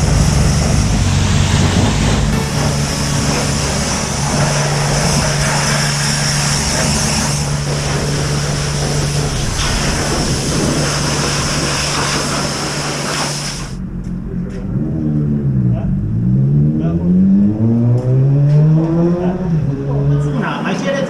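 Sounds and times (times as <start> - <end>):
pressure washer water jet hissing: 0.0 - 13.8
pump humming: 0.0 - 13.8.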